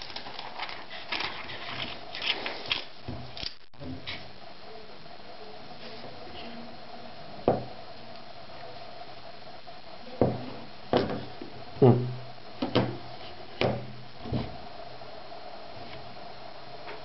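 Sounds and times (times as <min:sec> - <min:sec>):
knocks and thumps on tabletop: 0:07.5 - 0:07.7, 0:10.2 - 0:13.0.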